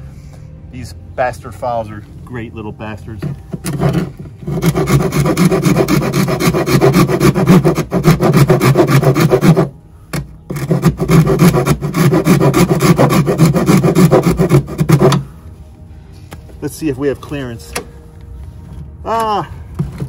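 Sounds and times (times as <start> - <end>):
file rasping on metal: 3.2 - 9.7, 10.5 - 15.3.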